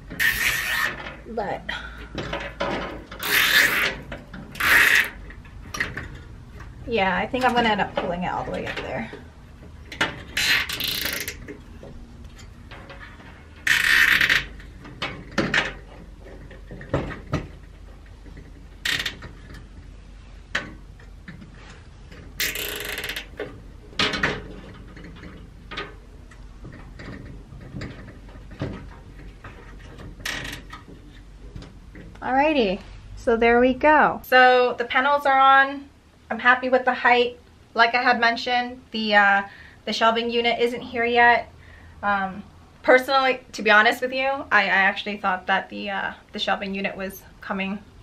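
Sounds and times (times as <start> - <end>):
zip ties ratcheting: 0.2 - 1.0, 3.2 - 4.0, 4.6 - 5.2, 10.4 - 11.4, 13.6 - 14.6, 22.4 - 23.3
wire panel clicking and knocking: 14.0 - 19.7.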